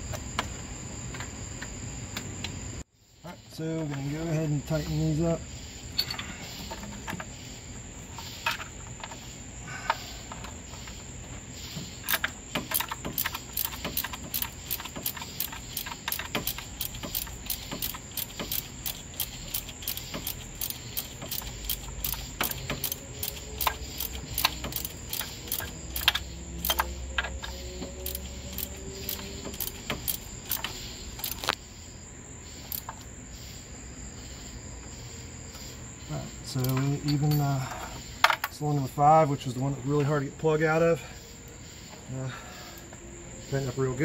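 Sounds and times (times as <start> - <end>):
socket ratchet clicking: 12.0 - 31.6, 32.6 - 33.1.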